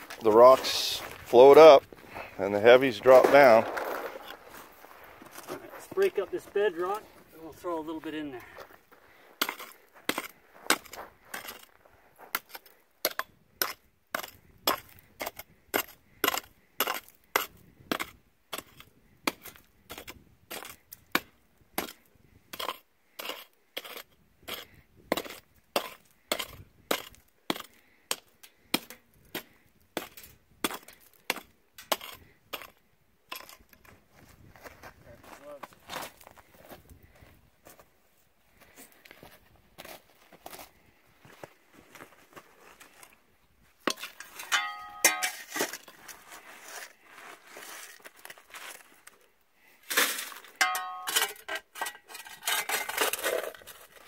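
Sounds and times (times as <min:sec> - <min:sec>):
hammer striking rock: 0:25.1 - 0:32.7.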